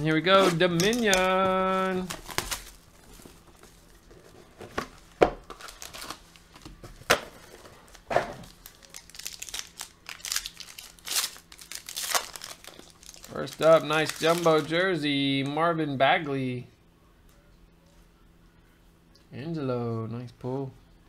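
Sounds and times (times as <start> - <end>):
plastic and foil crinkling: 0.1 - 14.9.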